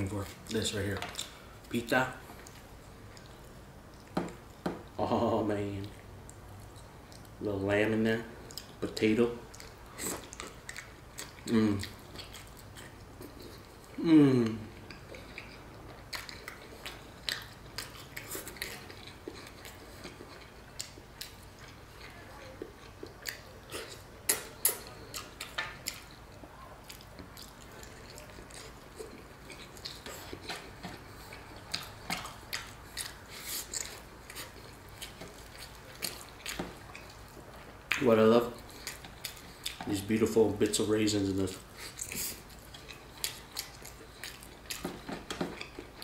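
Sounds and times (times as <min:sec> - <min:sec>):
wet chewing: 0:00.1 - 0:04.7, 0:08.4 - 0:46.0.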